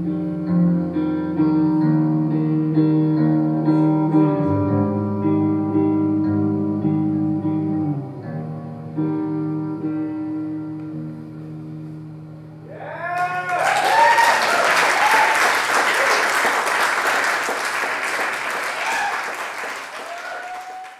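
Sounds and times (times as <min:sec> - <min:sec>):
electric guitar ringing notes: 0:00.0 - 0:12.7
crowd cheering and whooping: 0:12.7 - 0:16.7, 0:18.4 - 0:20.9
audience applause: 0:13.1 - 0:20.9.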